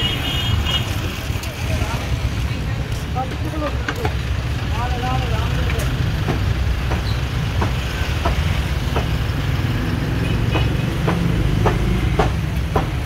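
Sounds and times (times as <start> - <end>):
street traffic rumble: 0.0 - 13.0
cleaver chopping on wooden block: 10.5 - 13.0.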